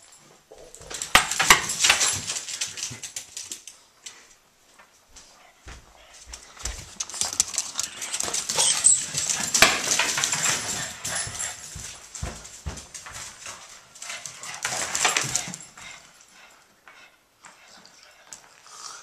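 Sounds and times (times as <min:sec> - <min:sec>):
claws scrabbling on tile floor: 0:00.0 - 0:04.4, 0:06.2 - 0:16.0
dogs growling and yipping: 0:07.3 - 0:11.6.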